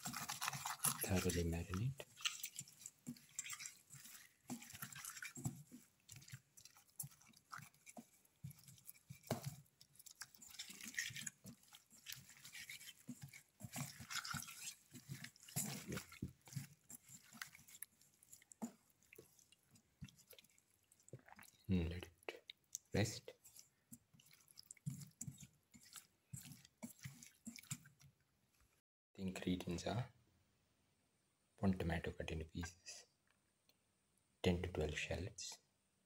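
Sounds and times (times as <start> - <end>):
hands squelching fish in marinade: 0.0 - 28.8.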